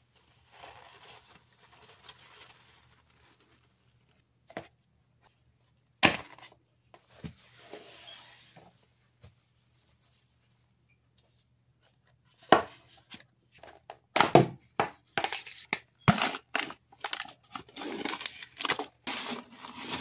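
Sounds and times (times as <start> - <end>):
paper towel rustling: 0.0 - 4.4, 7.4 - 11.6.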